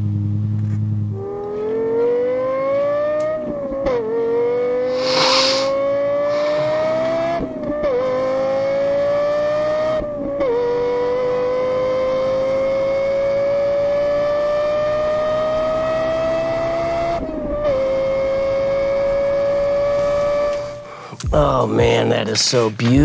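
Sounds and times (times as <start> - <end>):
sports car engine accelerating: 0.0 - 21.0
burst of hiss: 4.8 - 6.7.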